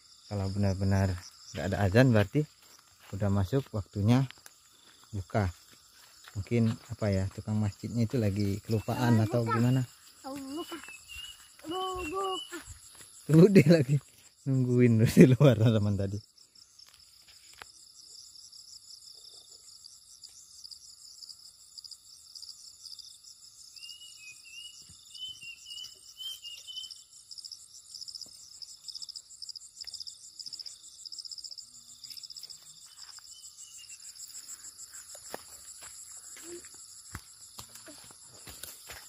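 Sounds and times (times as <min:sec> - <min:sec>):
crickets trilling: 0:00.0 - 0:39.0
bird warbling chirps: 0:23.8 - 0:27.1.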